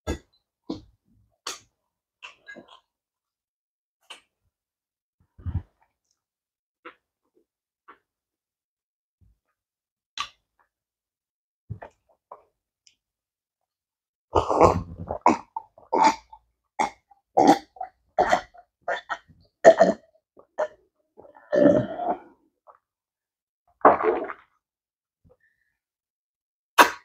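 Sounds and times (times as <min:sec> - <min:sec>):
woman gulping water: 0:14.4 - 0:22.8, 0:23.8 - 0:24.6.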